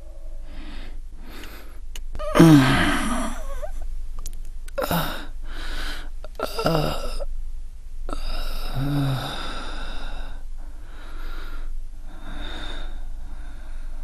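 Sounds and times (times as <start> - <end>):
man groaning: 2.2 - 3.7.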